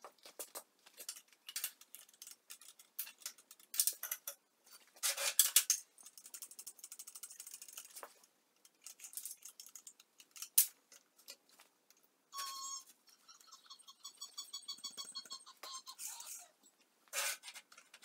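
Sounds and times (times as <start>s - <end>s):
metal clicks and rattles: 0.9s - 4.4s, 5.3s - 12.0s.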